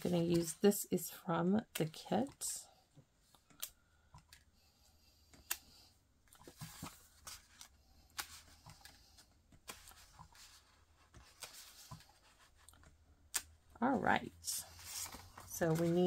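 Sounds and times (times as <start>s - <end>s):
paper rustling: 6.4s - 12.9s, 14.5s - 16.0s.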